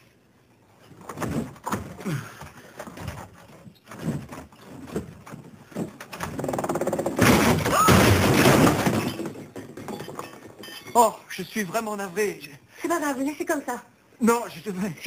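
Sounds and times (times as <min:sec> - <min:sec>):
loud crash: 0:07.2 - 0:09.4.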